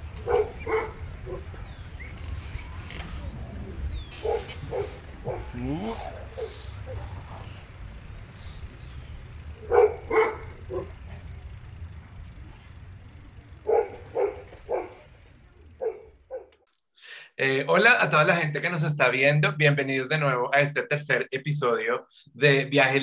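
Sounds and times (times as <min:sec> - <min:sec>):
low outdoor rumble: 0:00.0 - 0:16.6
dog barking: 0:00.2 - 0:01.5, 0:04.2 - 0:07.1, 0:09.6 - 0:11.0, 0:13.6 - 0:15.1, 0:15.8 - 0:16.5.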